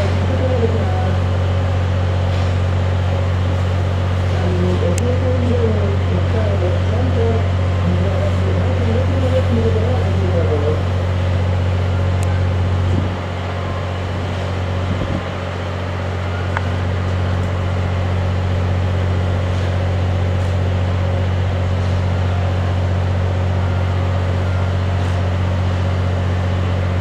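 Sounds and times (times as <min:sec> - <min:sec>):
low mechanical hum: 0:00.0 - 0:27.0.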